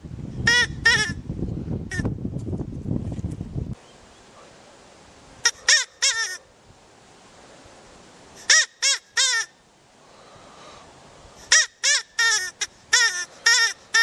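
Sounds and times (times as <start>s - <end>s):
rabbit squealing: 5.5s - 6.4s.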